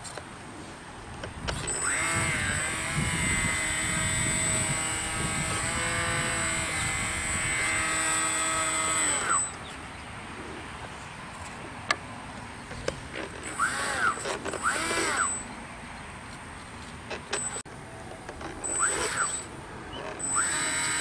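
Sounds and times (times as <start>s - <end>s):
toy boat motor whining: 1.3s - 9.7s, 13.1s - 15.6s, 17.1s - 17.6s, 18.3s - 21.0s.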